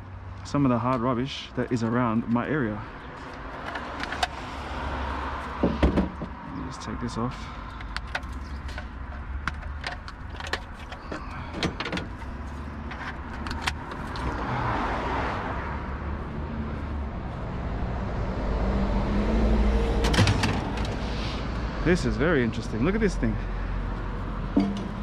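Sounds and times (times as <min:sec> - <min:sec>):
low vehicle engine rumble: 0:00.0 - 0:25.0
scrap knocking and clicking: 0:07.7 - 0:14.4.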